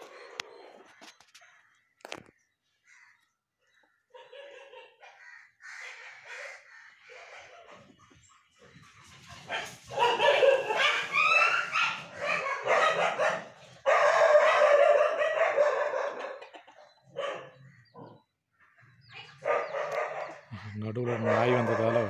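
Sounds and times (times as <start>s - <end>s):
dog barking: 4.2s - 5.2s, 9.5s - 18.1s, 19.4s - 22.0s.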